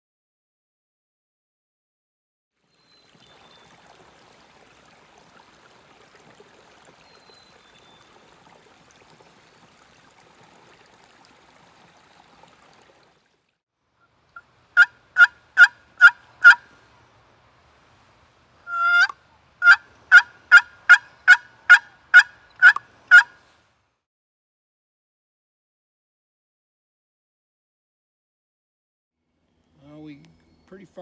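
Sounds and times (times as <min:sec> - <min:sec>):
stream trickling: 0:02.6 - 0:23.8
turkey call yelps: 0:14.4 - 0:16.7, 0:18.7 - 0:23.4.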